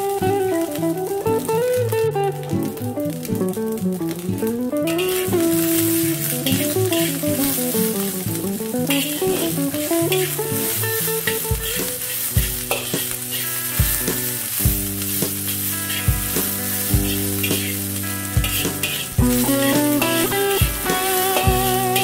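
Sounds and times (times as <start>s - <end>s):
rice sizzling in a wok: 0.0s - 22.0s
metal spatula scraping a wok: 5.1s - 8.1s, 8.9s - 22.0s
background music with low beat: 12.4s - 13.2s, 13.8s - 22.0s.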